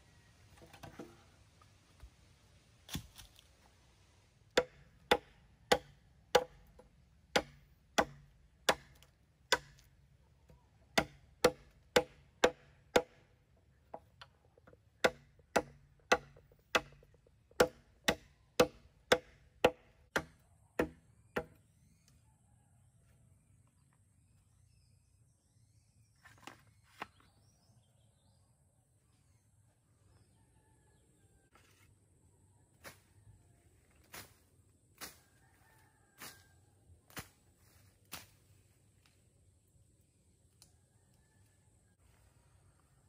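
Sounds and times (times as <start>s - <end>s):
machete chopping bamboo: 2.9s - 3.4s, 4.5s - 10.0s, 10.9s - 13.3s, 15.0s - 21.6s.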